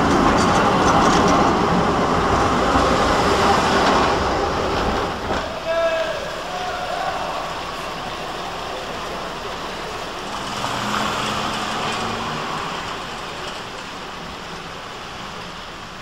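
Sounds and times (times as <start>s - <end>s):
street traffic: 0.0s - 16.0s
vehicle engine passing: 9.4s - 13.9s.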